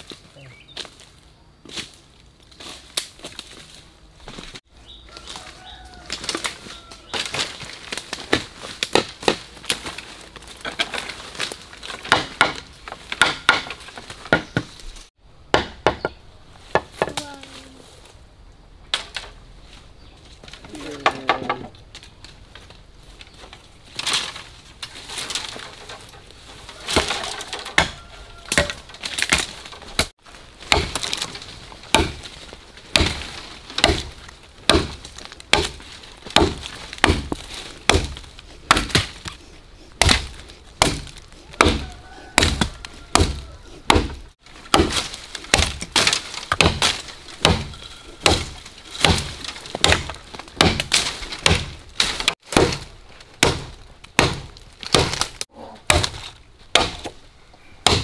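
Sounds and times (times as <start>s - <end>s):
chopping strikes on wood: 8.3s - 9.8s, 11.8s - 14.7s, 15.5s - 17.3s, 26.9s - 39.4s, 40.0s - 57.2s.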